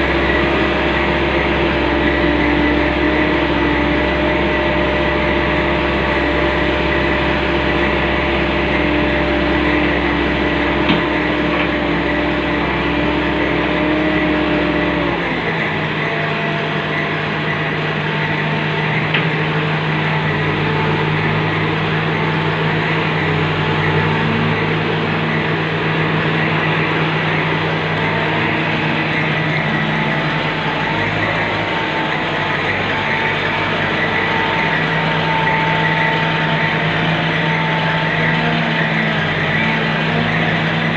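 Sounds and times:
diesel engine running: 0.0s - 40.9s
hydraulics moving: 14.6s - 40.9s.

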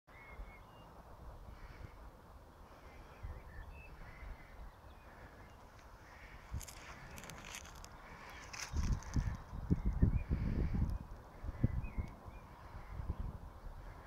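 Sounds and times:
faint bird calls: 0.1s - 14.0s
wind on microphone: 6.2s - 14.0s.

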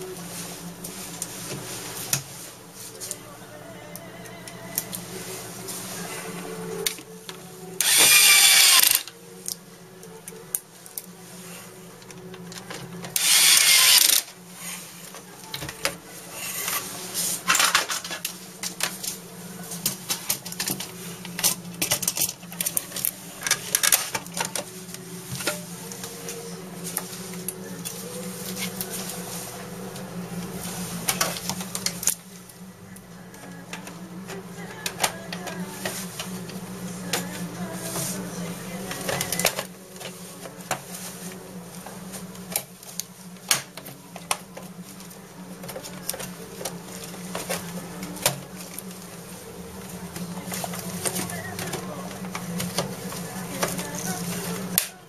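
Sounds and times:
loud harsh noises: 7.8s - 9.1s, 13.1s - 14.4s.

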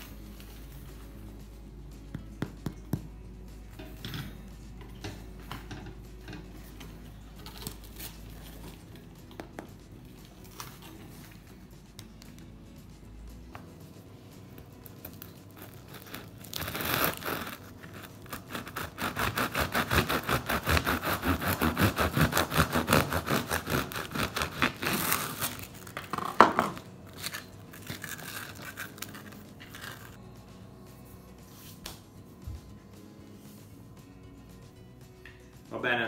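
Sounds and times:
bread crust crackling: 14.6s - 30.2s
knife sawing through bread: 15.6s - 25.7s.

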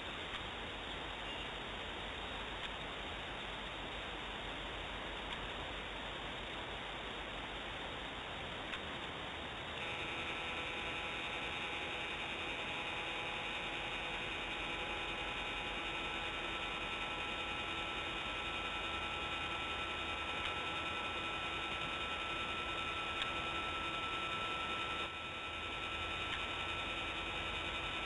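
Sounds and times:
steady hiss: 0.0s - 9.9s
small click: 2.6s - 2.9s
camera motor whining: 9.8s - 28.0s.

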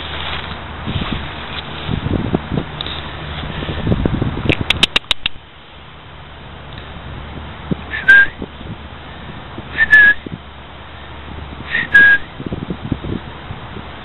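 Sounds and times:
person whistling two-note call: 7.9s - 8.4s, 9.8s - 10.2s, 11.7s - 12.3s.

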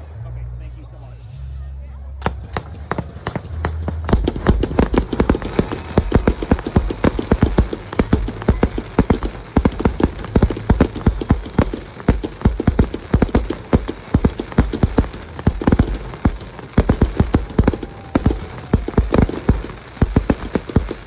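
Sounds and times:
fireworks crackling and popping: 2.2s - 21.0s
low firework thuds: 2.2s - 21.0s.

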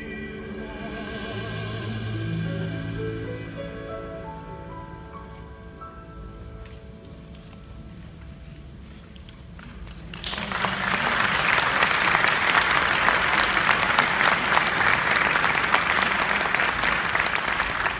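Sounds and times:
song notes: 0.0s - 7.4s
audience applause: 9.6s - 17.9s.

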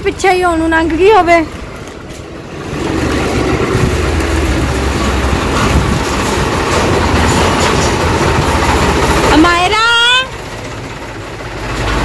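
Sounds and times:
tractor engine rumbling: 0.0s - 12.0s.

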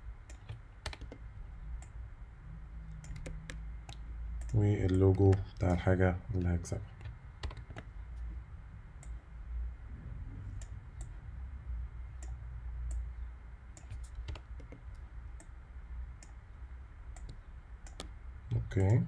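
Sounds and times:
steady low hum: 0.0s - 19.0s
computer input clicks: 0.3s - 1.2s, 2.9s - 5.7s, 7.0s - 7.9s.

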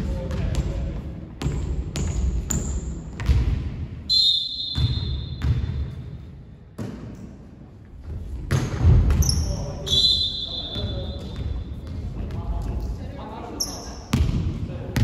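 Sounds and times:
volleyball slaps and thuds: 1.4s - 3.8s, 6.8s - 7.2s, 8.4s - 9.3s
sneaker squeak on court: 4.5s - 5.6s.

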